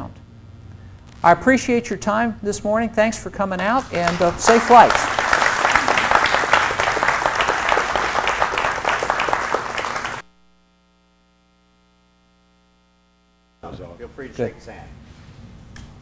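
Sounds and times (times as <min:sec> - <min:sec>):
audience applauding: 0:03.8 - 0:10.2.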